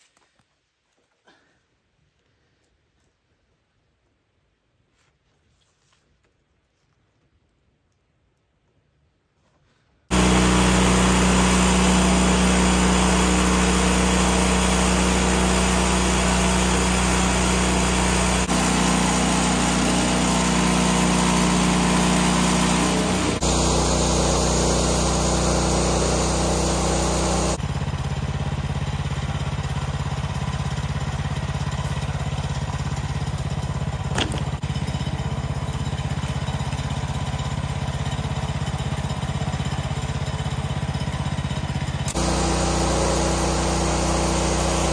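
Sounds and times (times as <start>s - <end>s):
sawmill gas engine running: 10.1s - 44.9s.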